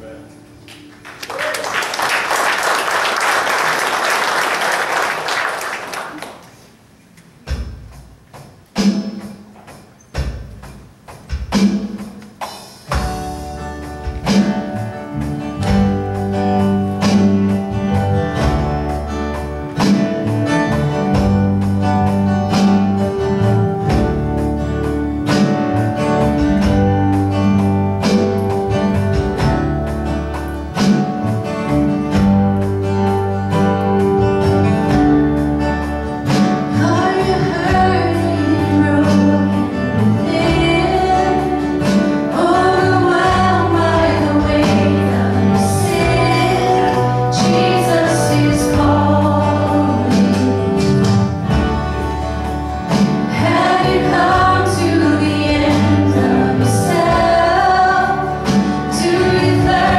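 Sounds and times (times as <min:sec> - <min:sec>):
applause: 0:00.7 - 0:06.7
guitar strums: 0:07.2 - 0:59.9
rock band playing: 0:07.4 - 0:59.9.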